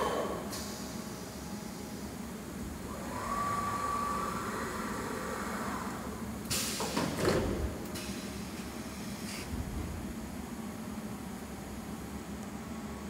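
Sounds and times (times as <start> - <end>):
machine whine: 2.6 - 6.5
woodworking machine hum: 2.7 - 6.4.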